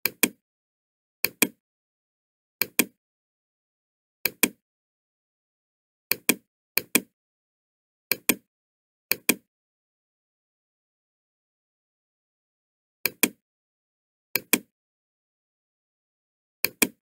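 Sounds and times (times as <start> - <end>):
computer mouse button clicking: 0.0 - 0.4, 1.2 - 1.6, 2.6 - 3.0, 4.3 - 4.6, 6.1 - 7.1, 8.1 - 8.4, 9.1 - 9.5, 13.1 - 13.4, 14.4 - 14.7, 16.6 - 17.0.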